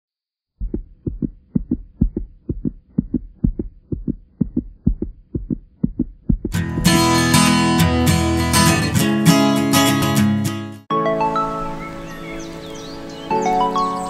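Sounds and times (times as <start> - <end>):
heartbeat thumps: 0.6 - 7.7
guitar music: 6.5 - 14.0.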